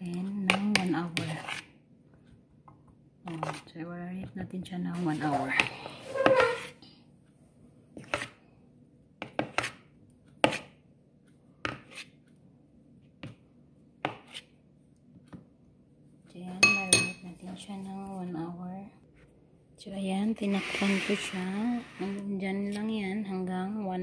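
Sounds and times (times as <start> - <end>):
metal spoon tapping a bowl: 16.6 - 17.2.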